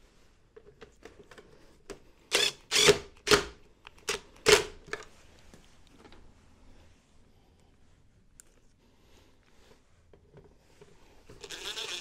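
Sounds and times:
cordless drill driving screws: 0:02.3 - 0:03.4, 0:11.4 - 0:12.0.

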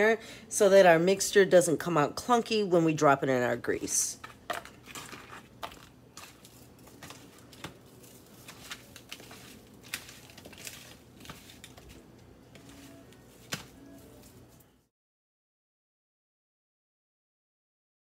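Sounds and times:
food tossed in breading rustling: 0:04.2 - 0:14.6.

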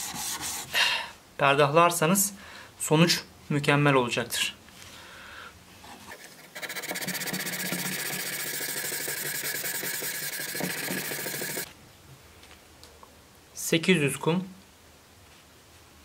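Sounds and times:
sandpaper scraping steel blade: 0:06.1 - 0:11.7.

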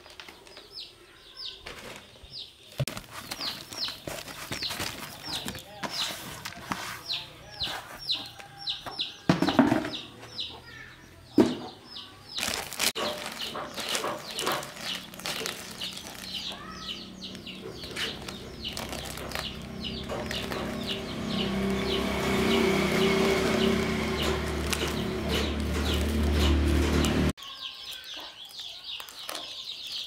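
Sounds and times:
chickens cheeping: 0:00.3 - 0:30.0
rustling: 0:01.6 - 0:08.5, 0:12.4 - 0:27.3.

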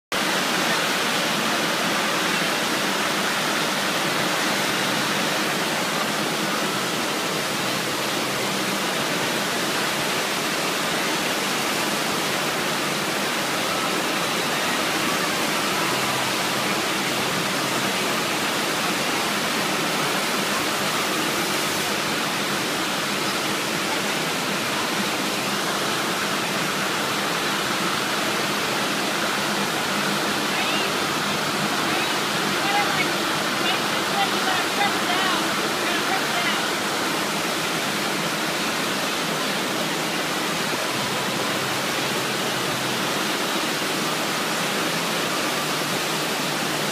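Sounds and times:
water rushing over surface: 0:00.1 - 0:46.9.

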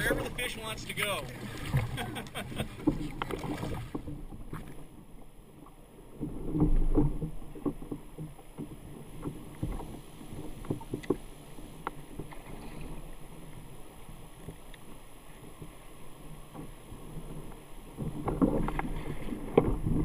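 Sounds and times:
water lapping against kayak hull: 0:00.0 - 0:20.0
small knocks and ticks: 0:06.2 - 0:12.8.

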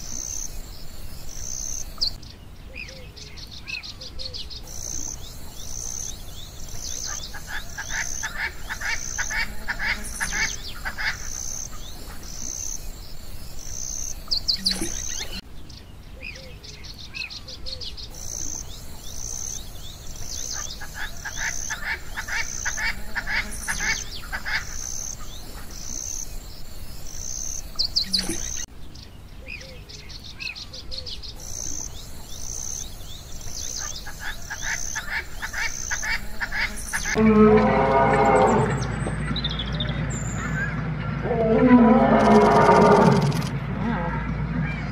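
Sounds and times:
high insect-like chirps: 0:00.0 - 0:02.2, 0:04.5 - 0:15.4, 0:18.0 - 0:28.7, 0:31.3 - 0:37.2, 0:42.0 - 0:43.5
birdsong: 0:00.0 - 0:44.9.

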